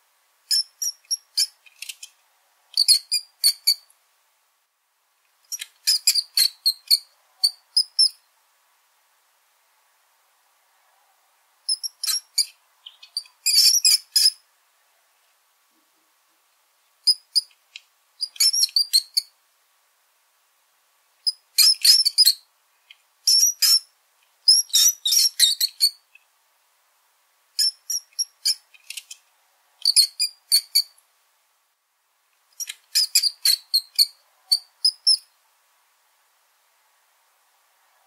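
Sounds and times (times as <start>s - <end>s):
rodent squeaking: 0.5s - 2.1s, 2.7s - 3.9s, 5.5s - 8.2s, 11.7s - 14.4s, 17.0s - 17.6s, 18.2s - 19.3s, 21.3s - 22.4s, 23.3s - 23.9s, 24.5s - 26.0s, 27.6s - 29.2s, 29.8s - 31.0s, 32.6s - 35.3s.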